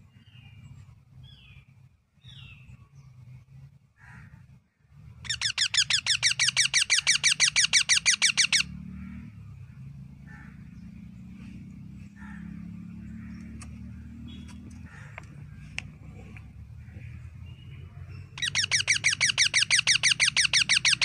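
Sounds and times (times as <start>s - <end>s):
parakeet chirping: 5.2s - 8.9s, 17.4s - 21.0s.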